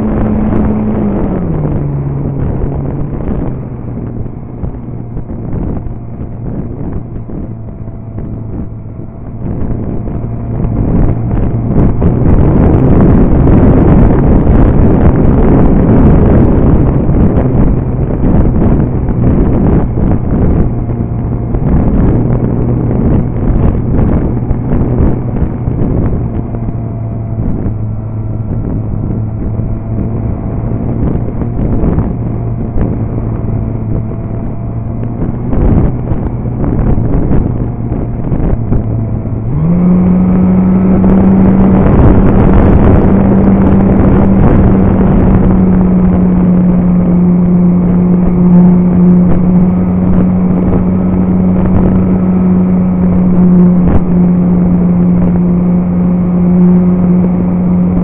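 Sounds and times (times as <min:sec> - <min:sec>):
wind rushing: 0:00.0 - 0:58.0.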